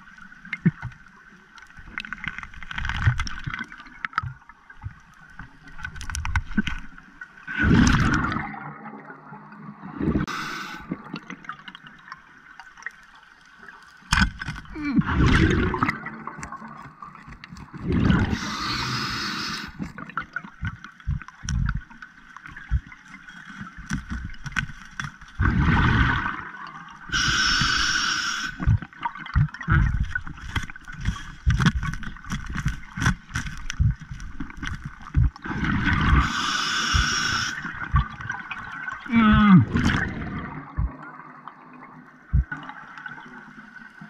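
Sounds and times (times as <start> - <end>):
knocks and scrapes underwater: 0.0 - 8.6, 13.8 - 26.5, 28.5 - 41.4, 42.2 - 43.2
diver breathing underwater bubbles: 9.8 - 11.2, 14.7 - 16.1, 17.8 - 21.9, 25.4 - 26.5, 27.1 - 32.8, 33.4 - 41.0.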